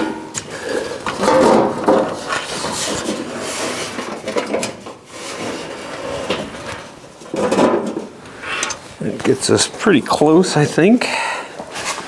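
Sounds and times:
metal panel scraping and clunking: 0.0 - 8.1.

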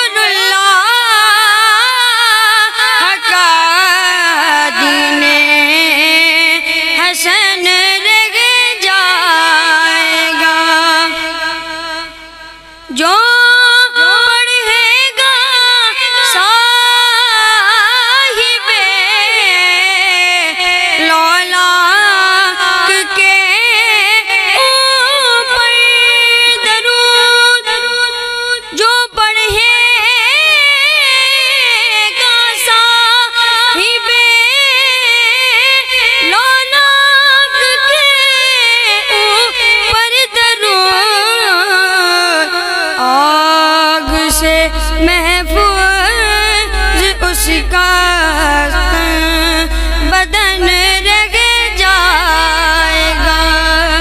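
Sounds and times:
boy singing into a microphone: 0.0 - 54.0
singer breathing: 44.8 - 45.0, 49.6 - 50.1.

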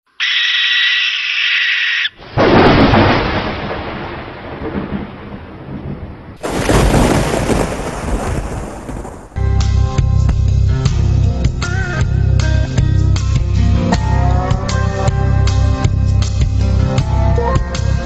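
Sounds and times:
harsh hissing screech: 0.2 - 2.2
thunderclap rumbling: 2.2 - 9.5.

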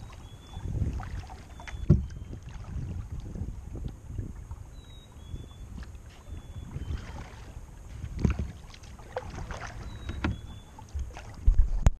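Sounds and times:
paddle strokes splashing: 0.0 - 11.9
paddle knocking on plastic hull: 0.8 - 2.5, 8.1 - 12.0.

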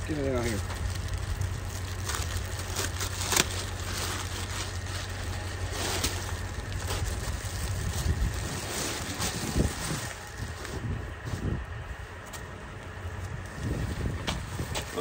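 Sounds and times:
plastic packaging rustling and crinkling: 0.0 - 11.5
steady low rumble: 0.0 - 15.0.

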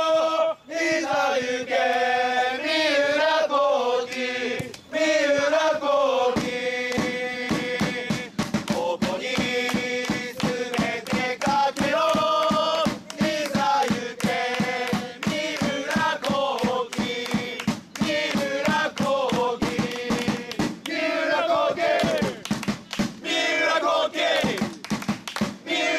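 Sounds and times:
group of voices singing: 0.0 - 24.8, 25.6 - 25.9
drum beat: 6.2 - 25.8.

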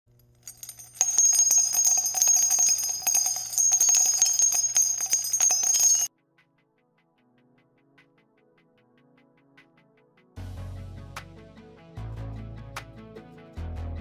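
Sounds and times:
bells jingling: 0.4 - 6.1.

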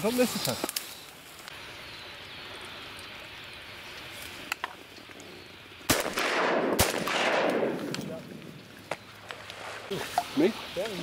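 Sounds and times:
faint marsh ambience: 0.0 - 11.0
shotgun shots: 5.9 - 8.2.

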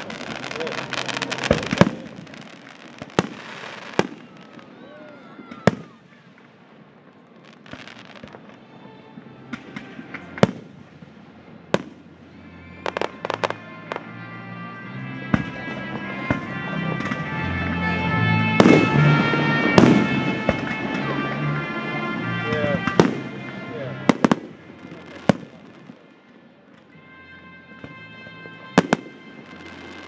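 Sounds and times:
rapid fireworks pops: 0.0 - 8.6, 9.5 - 12.1
fireworks bursting with sharp bangs: 0.0 - 14.2, 14.9 - 30.0.

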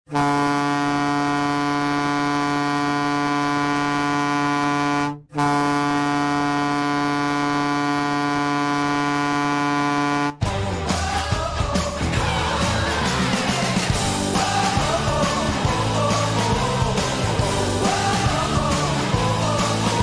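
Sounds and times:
goal horn blasts: 0.1 - 10.4.

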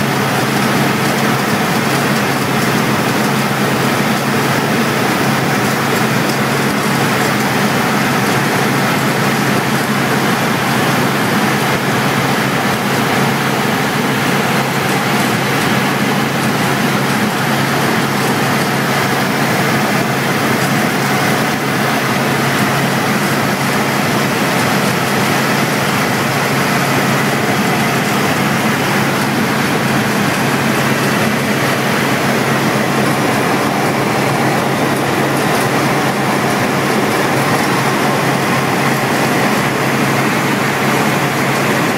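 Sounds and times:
helicopter engine and rotors drone: 0.0 - 41.9.

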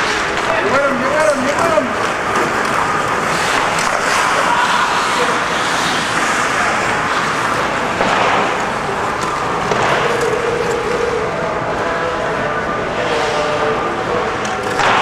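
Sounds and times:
skates hissing on ice: 2.9 - 9.0.

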